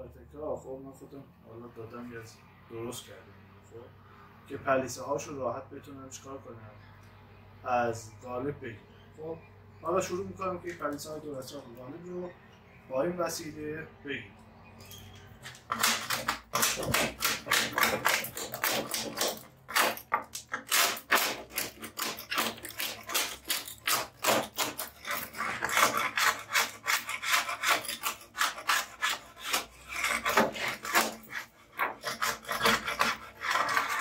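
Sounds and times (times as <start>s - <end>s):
hand scraper rasping: 15.4s - 34.0s.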